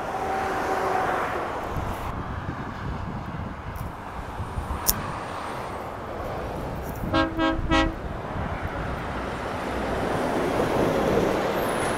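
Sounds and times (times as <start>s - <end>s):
road and engine noise: 0.0s - 11.9s
sharp click: 4.8s - 5.0s
lorry horn toots: 7.0s - 8.0s.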